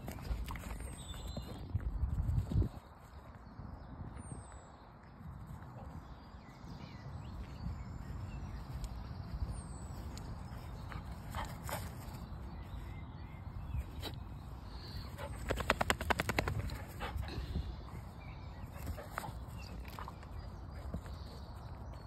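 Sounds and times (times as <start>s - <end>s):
wind rumble on microphone: 0.0s - 10.7s.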